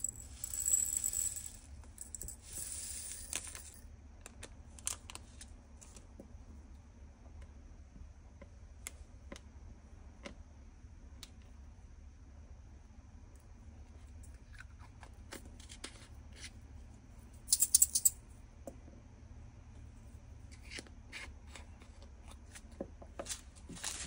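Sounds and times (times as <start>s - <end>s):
beads rattling into plastic bottle: 0.0s - 3.8s.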